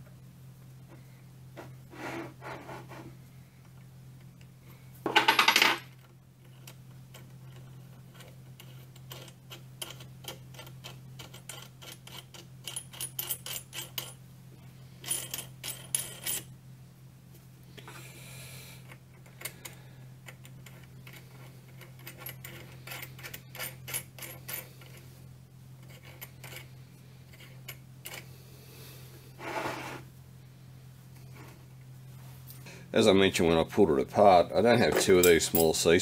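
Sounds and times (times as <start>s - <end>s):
louder rubbing noise: 1.9s - 3.1s, 29.4s - 30.1s.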